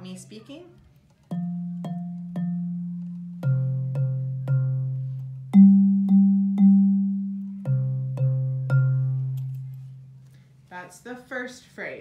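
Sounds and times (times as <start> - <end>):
bass xylophone notes: 1.3 - 10.6.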